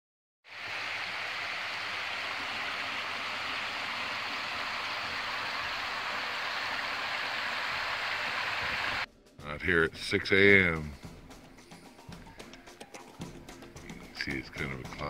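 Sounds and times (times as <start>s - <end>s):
creek water running over stones: 0.5s - 9.1s.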